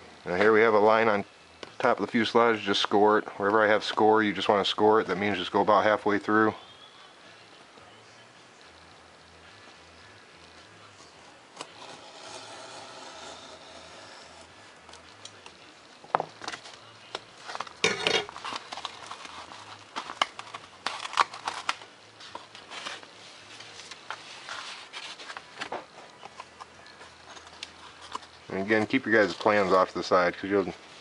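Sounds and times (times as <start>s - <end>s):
foam board crackle: 9.8s - 30.8s.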